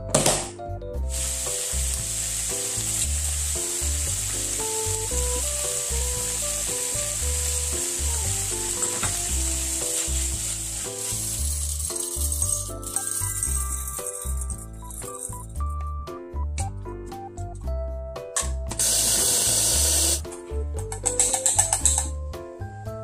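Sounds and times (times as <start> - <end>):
light background music: 0.0 - 23.0
stir-fry sizzling in frying pan: 1.1 - 11.8.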